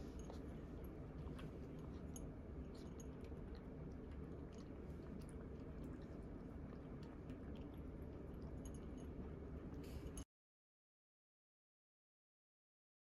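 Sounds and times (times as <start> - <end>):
low room hum: 0.0 - 10.3.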